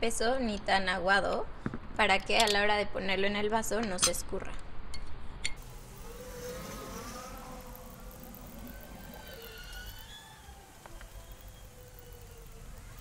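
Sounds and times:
faint siren wailing: 5.6s - 13.0s
low traffic rumble: 5.6s - 13.0s.

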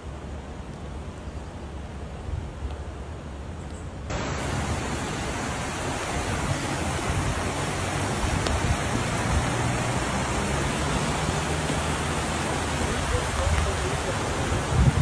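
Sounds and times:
floodwater rushing: 4.1s - 15.0s.

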